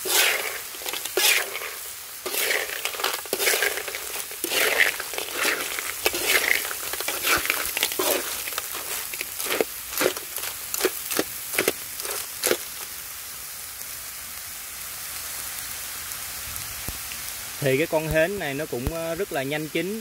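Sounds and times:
metal spoon scraping a pan: 0.0 - 12.8
steady sizzle: 0.0 - 20.0.

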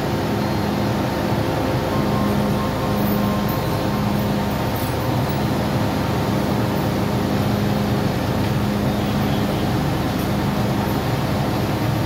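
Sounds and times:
train equipment humming: 0.0 - 12.0.

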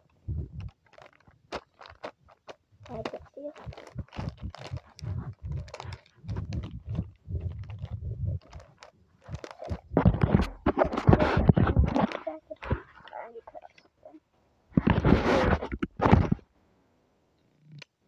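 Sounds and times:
plastic packaging crinkling: 0.5 - 14.2
low thuds: 2.8 - 8.7, 9.3 - 12.0.

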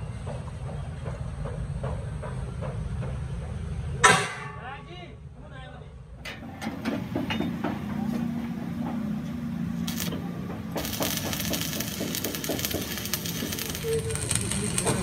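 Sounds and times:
arc welding crackling and sizzling: 9.7 - 15.0
scattered knocks: 10.4 - 13.8.

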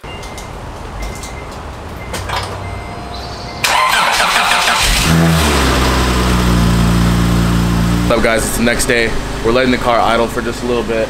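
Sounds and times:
car engine idling: 2.5 - 11.0
engine starter cranking: 3.6 - 5.7.

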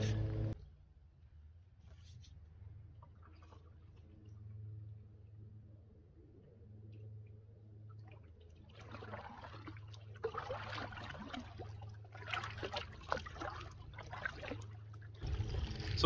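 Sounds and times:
water splashing and dripping: 3.0 - 4.6, 7.8 - 16.0
canoe paddle strokes in water: 8.0 - 16.0.

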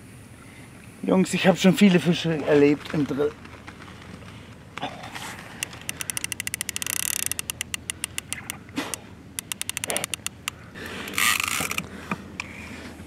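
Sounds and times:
fishing reel ratcheting clicks: 5.6 - 12.5.

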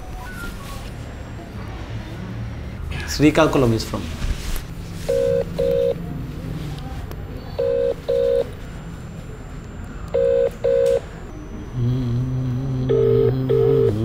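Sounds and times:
phone ringback tone: 5.1 - 6.0, 7.6 - 8.6, 9.6 - 14.0.

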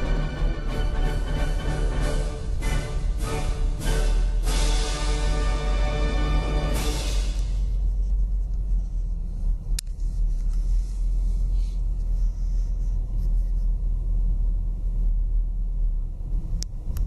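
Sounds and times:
car driving rumble inside cabin: 7.4 - 17.0.

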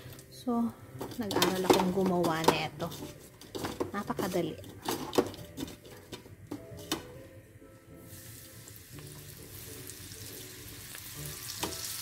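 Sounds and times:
shrimps sizzling in oil: 8.0 - 12.0
hot oil bubbling: 8.1 - 12.0.

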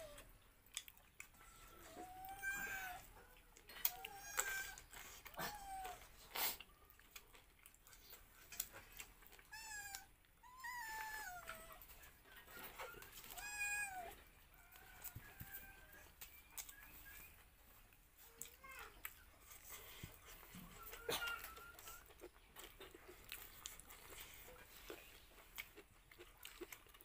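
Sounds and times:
cat meowing: 1.4 - 3.1, 3.9 - 4.8, 9.5 - 11.8, 13.2 - 14.2.

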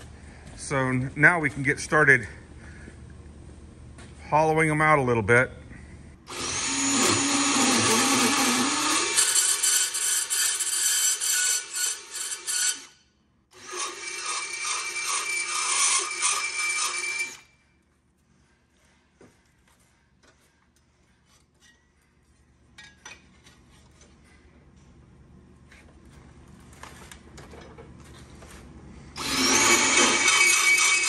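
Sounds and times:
drill grinding through steel: 6.3 - 13.0, 13.6 - 17.5, 29.2 - 31.0.

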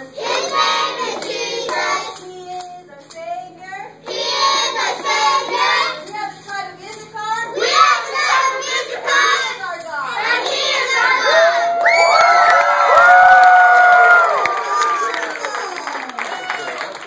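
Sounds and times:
children chanting a cheer: 0.1 - 2.2, 4.1 - 6.1, 7.5 - 16.9
children shouting: 10.3 - 17.0.

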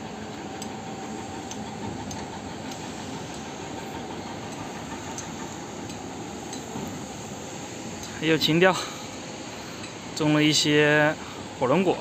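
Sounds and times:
faint ticks: 4.5 - 6.7.

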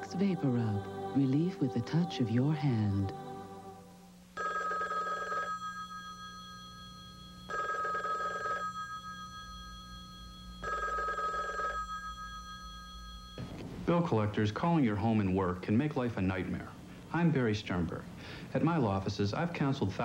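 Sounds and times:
music track: 0.0 - 4.1
telephone ringing: 4.4 - 13.6.

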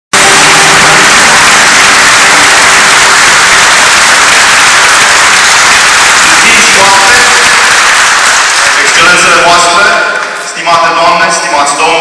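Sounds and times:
audience applauding: 0.2 - 11.0.

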